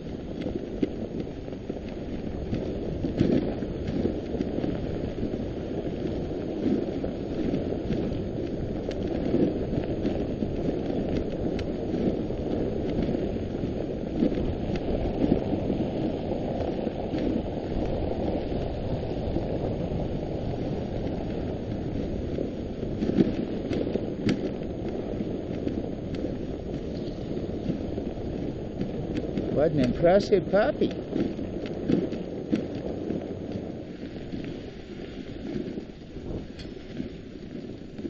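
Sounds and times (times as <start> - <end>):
sled runners rushing over snow: 0.0 - 38.0
faint light ticks: 0.1 - 4.9, 7.5 - 13.6, 23.0 - 38.0.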